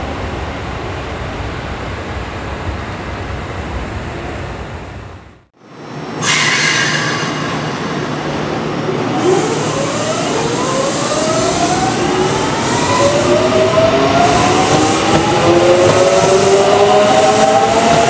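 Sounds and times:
train running noise: 0:00.0 - 0:18.0
electric train inverter whine: 0:05.6 - 0:18.0.

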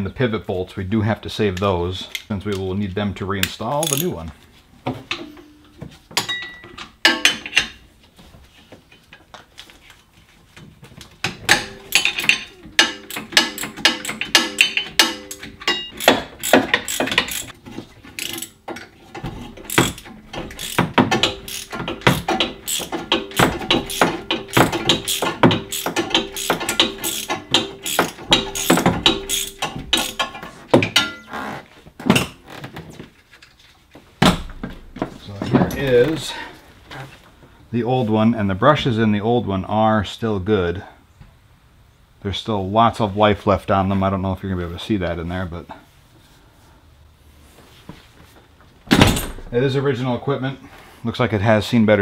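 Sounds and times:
ratchet wrench clicking: 0:03.8 - 0:04.1, 0:11.6 - 0:17.6, 0:18.2 - 0:18.6, 0:19.7 - 0:30.4
tool knocking on metal: 0:19.7 - 0:31.0.

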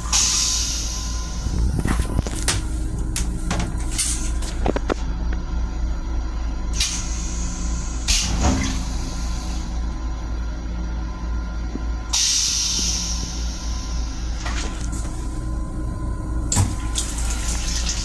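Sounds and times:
moving train rumble: 0:00.0 - 0:18.0
toilet flush hissing: 0:16.5 - 0:18.0.

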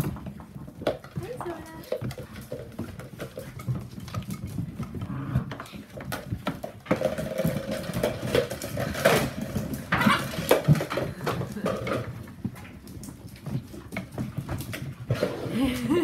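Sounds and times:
claws clattering on hard floor: 0:00.0 - 0:16.0.

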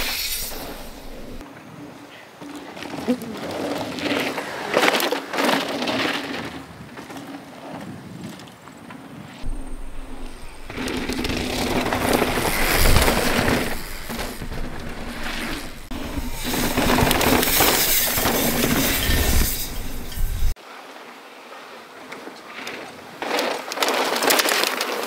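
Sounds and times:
wind rushing over microphone: 0:07.8 - 0:20.6
tyres crunching over gravel: 0:09.4 - 0:20.0.

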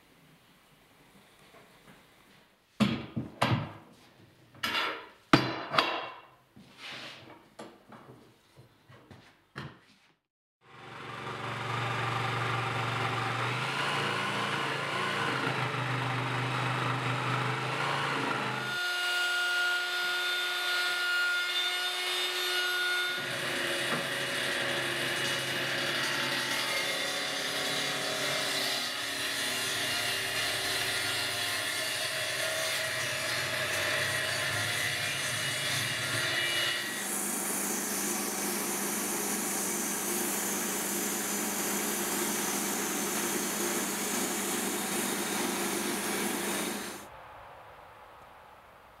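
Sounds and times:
table saw cutting boards: 0:10.6 - 0:47.1
wood lathe turning: 0:10.8 - 0:26.1, 0:37.0 - 0:47.1.

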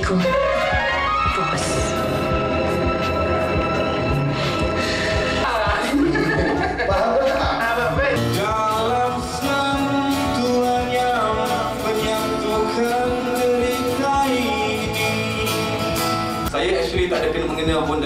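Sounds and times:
man singing: 0:05.4 - 0:18.0
strummed acoustic guitar: 0:08.0 - 0:17.1.

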